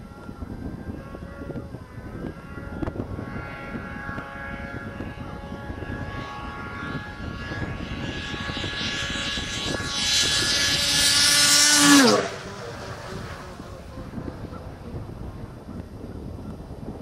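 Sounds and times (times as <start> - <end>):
snowmobile engine running hard: 0.0 - 17.0.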